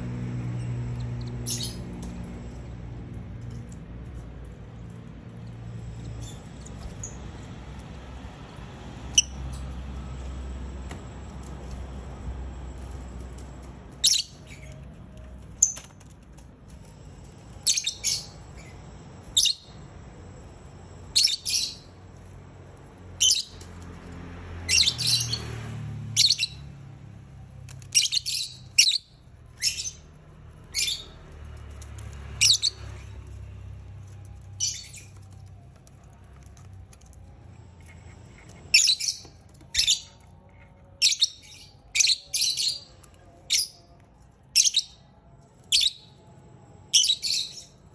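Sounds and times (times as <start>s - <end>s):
lovebirds chirping: 34.6s - 35.3s.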